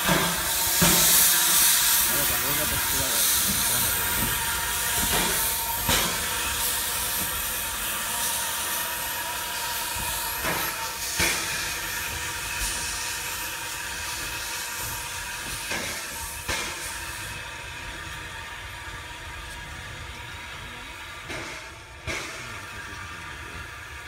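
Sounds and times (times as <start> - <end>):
locomotive clanks: 0.0 - 8.4, 9.9 - 13.1, 19.4 - 24.0
steam hissing: 0.0 - 24.0.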